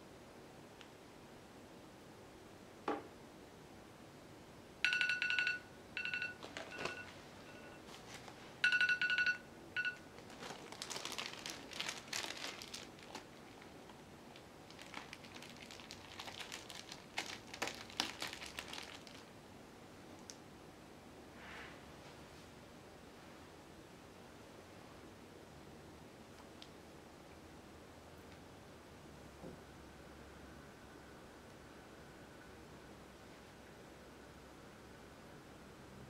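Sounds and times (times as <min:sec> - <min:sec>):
plastic bag crinkling: 0:06.3 - 0:07.2, 0:07.9 - 0:08.4, 0:09.9 - 0:19.3.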